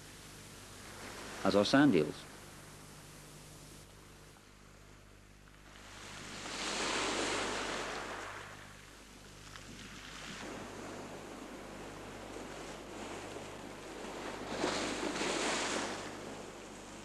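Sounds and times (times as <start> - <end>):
sea waves washing on shore: 0.7 - 2.6, 5.6 - 17.0.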